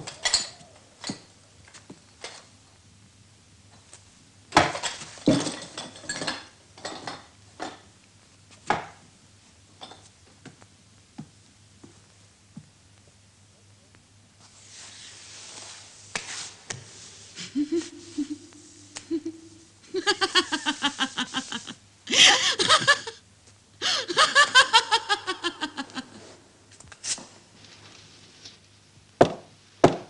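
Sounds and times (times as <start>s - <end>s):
person laughing: 17.4s - 23.2s, 23.8s - 26.3s.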